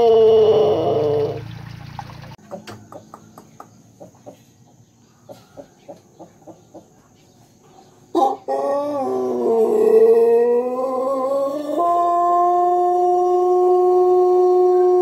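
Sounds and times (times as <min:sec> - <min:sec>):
rooster crowing: 0:00.0 - 0:01.4, 0:08.1 - 0:15.0.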